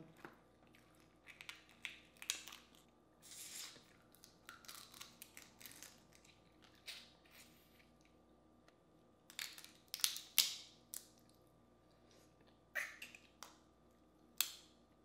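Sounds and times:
crawfish shell cracking: 4.1 - 7.0.

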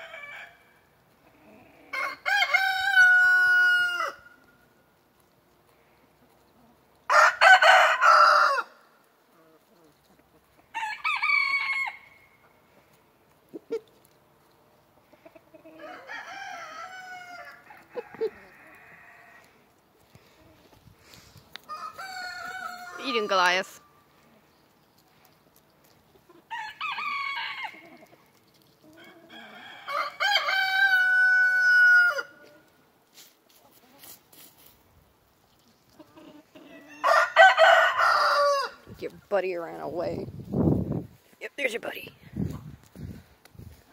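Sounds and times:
rooster crowing: 1.9 - 4.3, 7.1 - 8.8, 10.7 - 12.1, 15.8 - 19.4, 21.7 - 23.1, 26.5 - 27.8, 29.3 - 32.4, 36.8 - 38.8.

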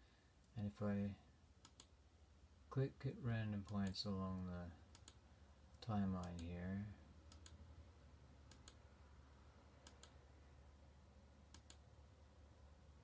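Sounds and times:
computer mouse clicks: 1.6 - 1.9, 4.9 - 5.2, 6.2 - 6.5, 7.3 - 7.6, 8.5 - 8.8, 9.8 - 10.2, 11.5 - 11.8.

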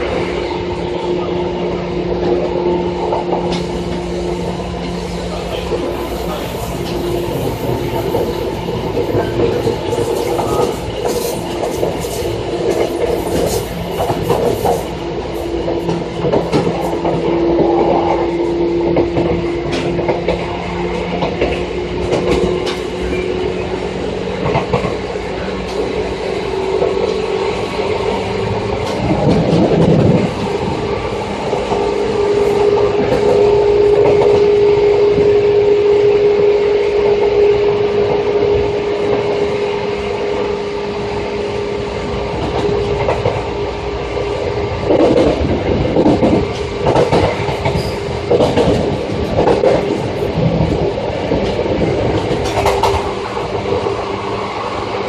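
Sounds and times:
train motor and gear whine: 0.0 - 55.0
rail-joint clicks: 2.1 - 34.6, 41.9 - 55.0.

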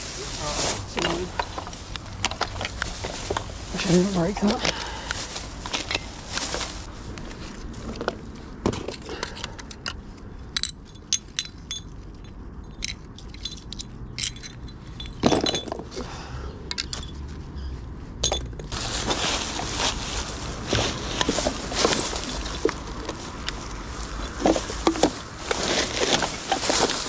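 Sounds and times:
steady rustling: 0.0 - 16.0, 17.0 - 27.0
glass bottles clinking: 10.5 - 16.0, 18.2 - 18.7.

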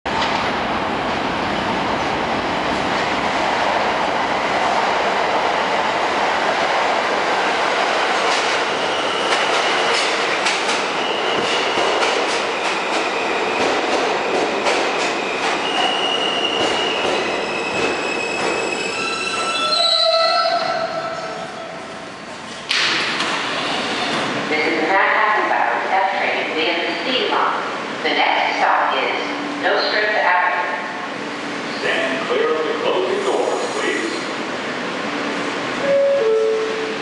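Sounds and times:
subway train rumbling: 0.0 - 37.0
high wheel squeal: 15.6 - 20.6.

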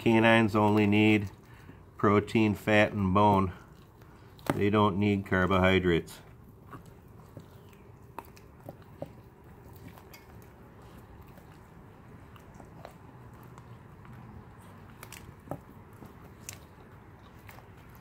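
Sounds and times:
puppies chewing frozen fish: 0.0 - 18.0
teeth crunching and clicking: 3.5 - 4.7, 6.2 - 18.0.

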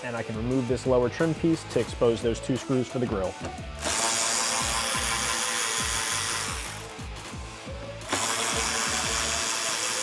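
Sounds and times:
cordless power driver spinning: 3.7 - 7.0, 8.0 - 10.0.

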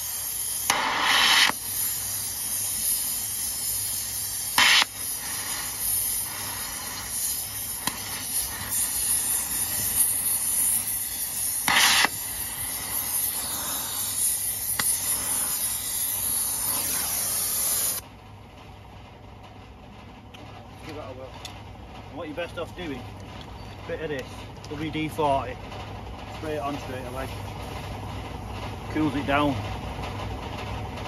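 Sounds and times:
cutting torch flame hissing: 0.0 - 18.0.

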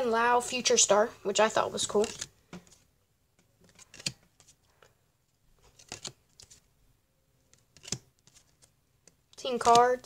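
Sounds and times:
cards scraping and tapping: 1.7 - 4.6, 5.6 - 6.6, 7.5 - 10.0.

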